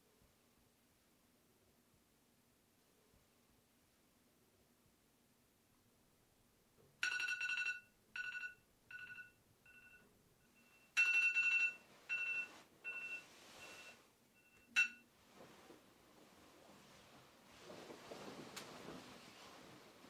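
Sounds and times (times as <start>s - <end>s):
smartphone alarm two-pitch tone: 12.1s - 14.6s.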